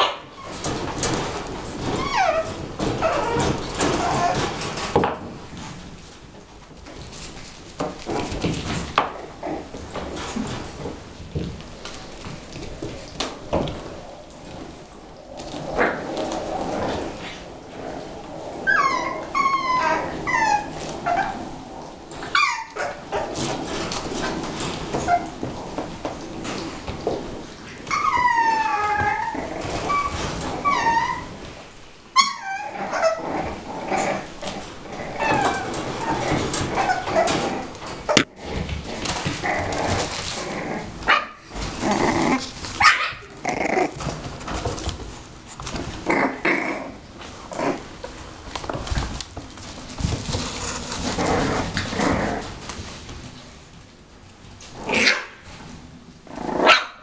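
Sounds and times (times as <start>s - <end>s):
paws scuffling and clicking: 0.4s - 31.5s, 34.4s - 46.2s, 47.1s - 54.8s
puppies yelping and whimpering: 18.6s - 21.5s, 22.3s - 23.3s, 27.8s - 31.4s, 32.2s - 33.2s.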